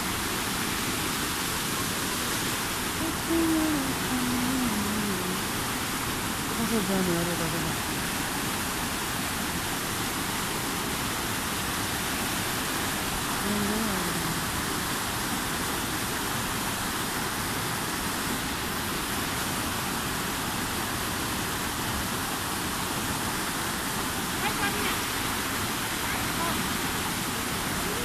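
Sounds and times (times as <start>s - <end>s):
floodwater rushing: 0.0s - 28.0s
person calling out: 3.0s - 5.4s, 13.4s - 14.4s.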